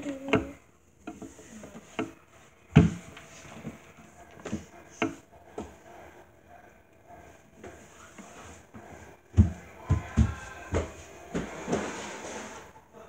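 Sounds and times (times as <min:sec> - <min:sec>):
objects knocking and bumping: 0:00.2 - 0:05.8.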